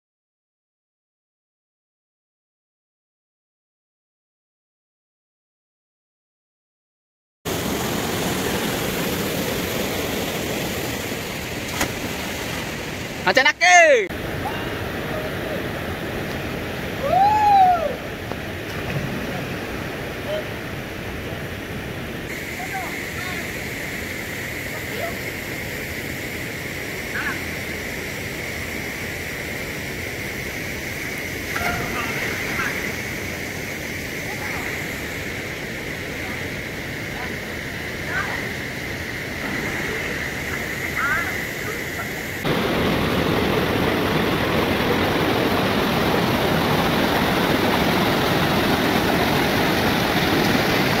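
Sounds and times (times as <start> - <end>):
rushing water of waterfall: 7.5 - 51.0.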